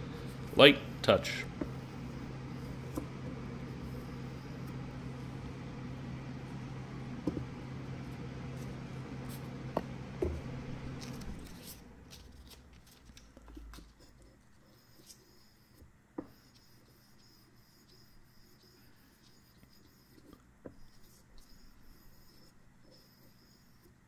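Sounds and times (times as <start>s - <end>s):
low hum: 0.0s - 12.8s.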